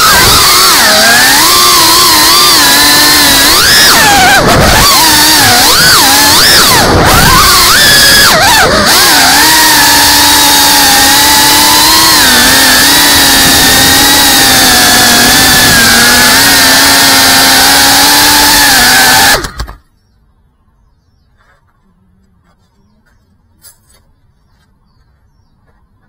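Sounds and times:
drone motors whining: 0:00.0 - 0:20.0.

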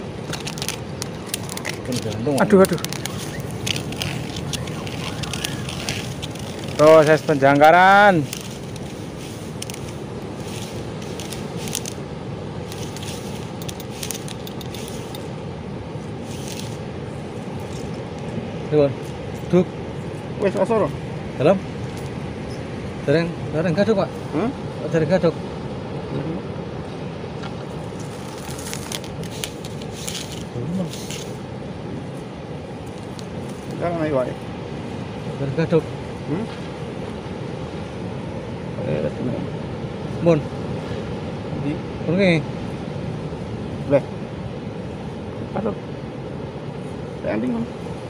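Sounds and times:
bushes rustling: 0:00.0 - 0:25.6, 0:26.8 - 0:38.0
heavy surf rushing: 0:00.0 - 0:48.0
fishing line being handled: 0:00.2 - 0:12.0, 0:12.6 - 0:15.3, 0:16.2 - 0:16.8, 0:27.9 - 0:31.4.

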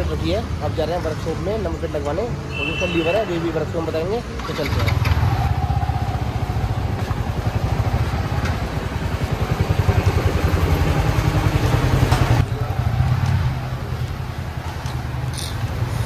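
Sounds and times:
motorcycle engine putter: 0:14.6 - 0:16.0.

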